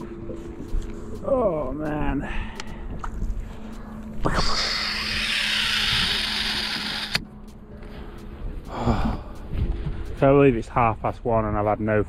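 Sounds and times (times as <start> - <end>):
fishing reel spool whirring: 2.6 - 7.2.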